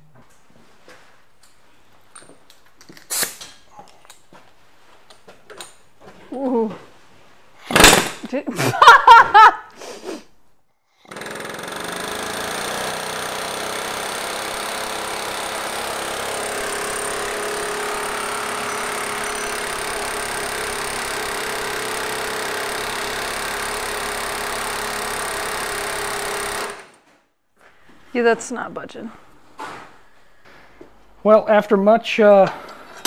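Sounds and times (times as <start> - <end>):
air hammer rattling: 7.7 - 8.2, 11.1 - 27.0.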